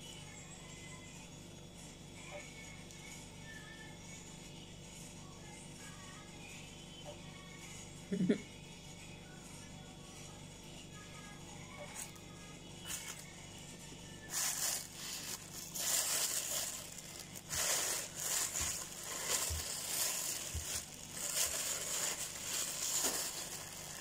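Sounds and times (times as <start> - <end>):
plastic bag crinkling: 14.3 - 24.0.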